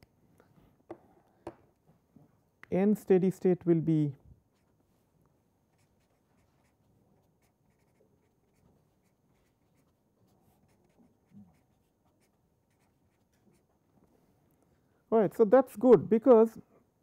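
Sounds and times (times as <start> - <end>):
marker scratching on paper: 5.7 - 13.7.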